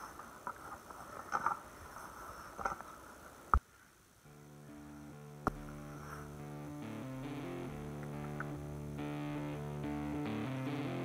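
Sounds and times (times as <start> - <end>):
music with long held notes: 4.3 - 11.0.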